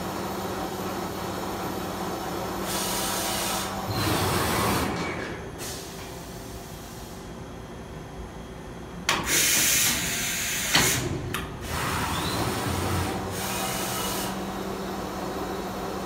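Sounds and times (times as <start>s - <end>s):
steady machine hum: 0.0s - 9.3s, 9.9s - 16.0s
machine sliding and drive noise: 2.7s - 6.2s.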